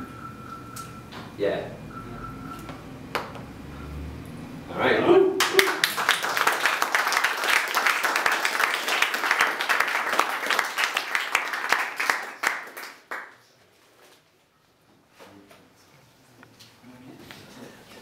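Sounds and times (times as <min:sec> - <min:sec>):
audience applauding: 0:05.4 - 0:13.4.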